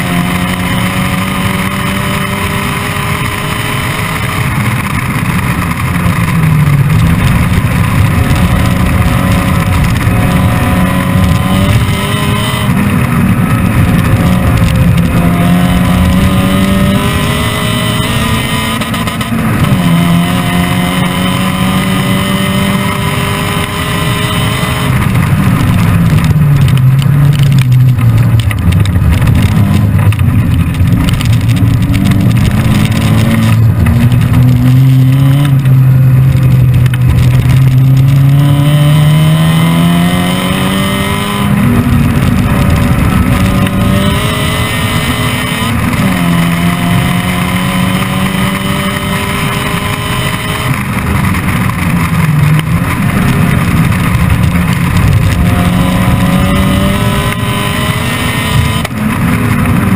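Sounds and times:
car engine revving at full load: 0:00.0 - 0:59.9.

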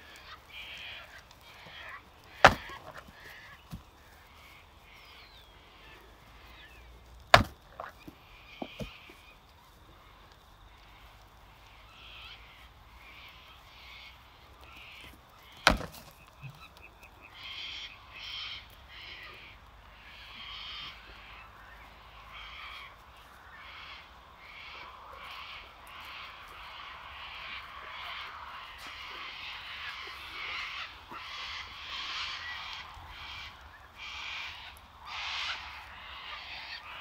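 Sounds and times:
goats clashing horns: 0:00.0 - 0:04.1, 0:07.1 - 0:09.2, 0:14.6 - 0:16.4.

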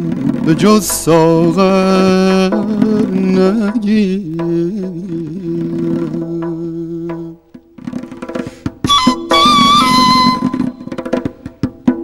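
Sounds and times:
breathy reed flute: 0:08.4 - 0:11.0.

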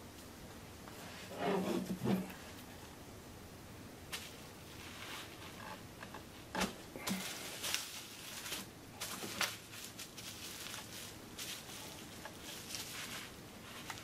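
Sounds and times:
bubble wrap crinkling: 0:06.4 - 0:14.0.

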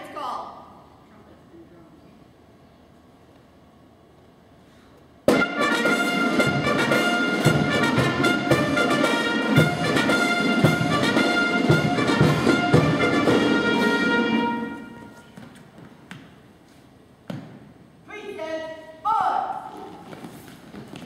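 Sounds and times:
brass band playing: 0:05.3 - 0:15.2.

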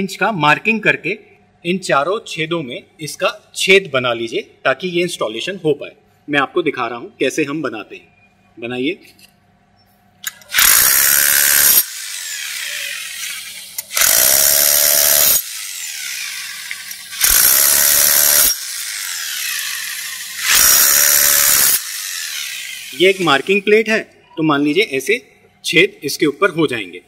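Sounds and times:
electric drill boring into foam: 0:10.5 - 0:23.4.

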